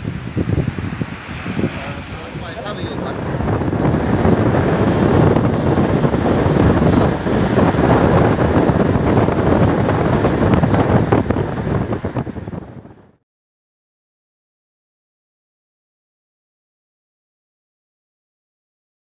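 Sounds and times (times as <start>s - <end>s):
car road noise: 0.0s - 13.2s
wind buffeting microphone: 0.0s - 13.2s.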